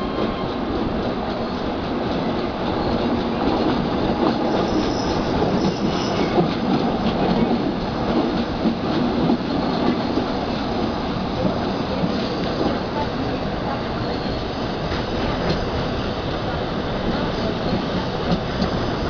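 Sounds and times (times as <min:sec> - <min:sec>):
train wheels rumbling on rails: 0:00.0 - 0:19.0
faint high wheel squeal: 0:04.5 - 0:06.4.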